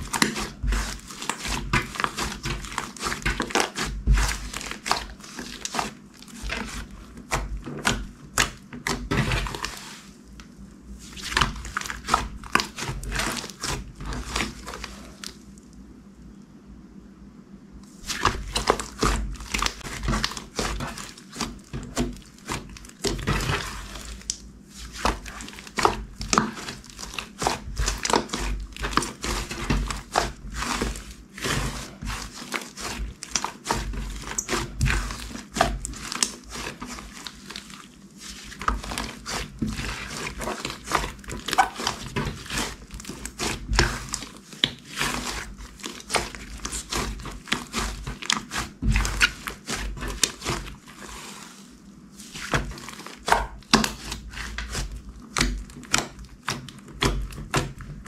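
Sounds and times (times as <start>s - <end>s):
slime crackling and popping: 18.0s - 51.2s.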